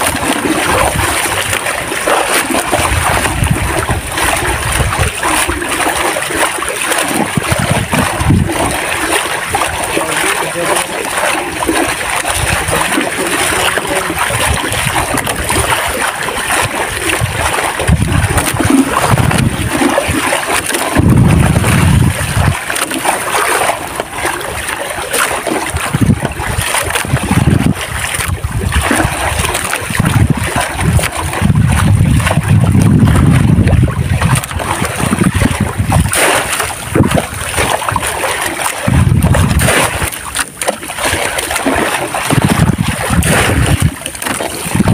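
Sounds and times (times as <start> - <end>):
seawater splashing and sloshing: 0.0 - 44.9
low rumbles: 20.8 - 22.7, 25.7 - 38.2, 38.8 - 40.1.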